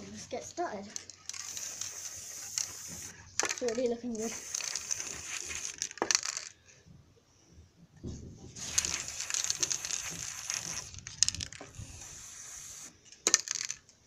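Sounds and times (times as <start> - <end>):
spray paint can hissing: 1.2 - 6.4, 8.6 - 13.4.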